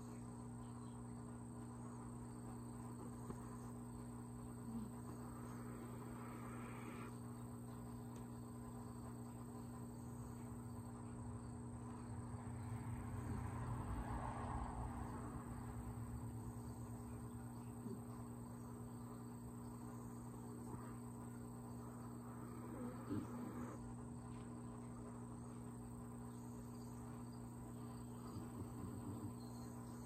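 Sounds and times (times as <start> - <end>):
low hum: 0.0 - 30.0
pet snoring faintly: 4.6 - 7.2, 22.2 - 24.0, 28.2 - 29.7.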